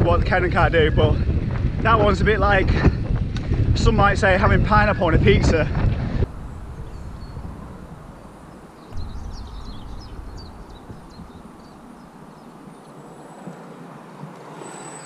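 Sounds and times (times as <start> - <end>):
wind rumbling on microphone: 0.0 - 14.7
faint bird chirps: 8.7 - 13.9.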